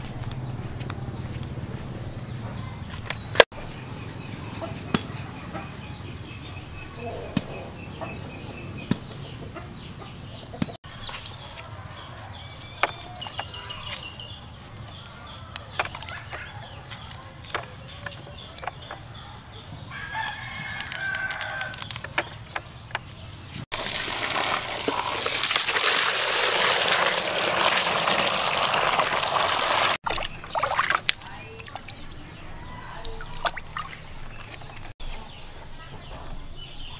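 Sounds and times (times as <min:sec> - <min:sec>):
rooster crowing: 0:19.9 - 0:21.8
water pouring into plastic bucket: 0:23.7 - 0:31.2.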